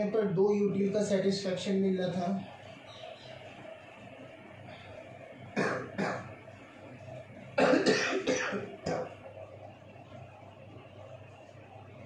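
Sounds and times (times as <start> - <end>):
man coughing: 7.6 - 9.2.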